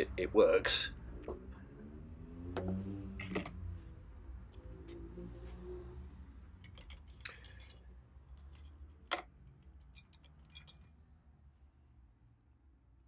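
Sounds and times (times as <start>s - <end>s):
small metal tools clinking: 6.6s - 11.1s.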